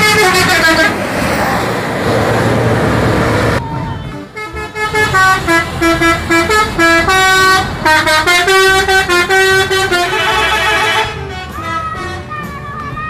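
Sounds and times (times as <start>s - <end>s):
musical bus air horn: 0.0s - 1.0s, 3.6s - 13.0s.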